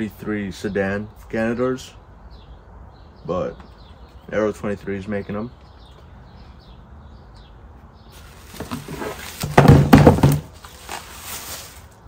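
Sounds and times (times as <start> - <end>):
cardboard box handled: 8.2 - 11.7
bubble wrap crinkling: 8.2 - 12.0.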